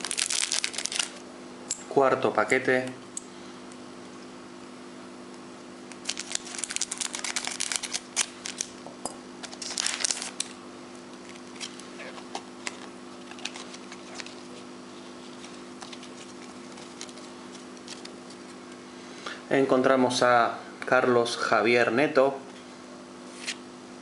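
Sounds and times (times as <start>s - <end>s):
foil wrapper crinkling: 0.0s - 1.2s, 5.9s - 8.8s, 9.4s - 10.6s, 12.6s - 14.7s, 15.3s - 18.5s.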